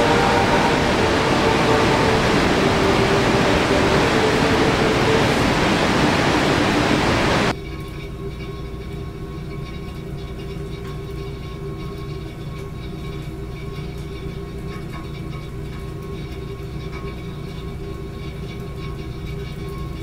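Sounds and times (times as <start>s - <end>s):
faint steady tones: 0.0s - 7.5s
whitewater rushing at waterfall: 0.0s - 7.5s.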